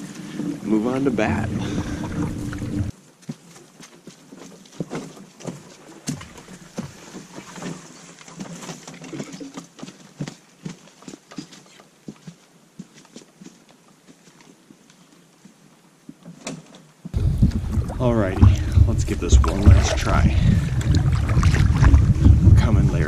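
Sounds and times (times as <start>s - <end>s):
boots on rocky trail: 2.9s - 16.2s
wind noise on microphone: 17.2s - 23.0s.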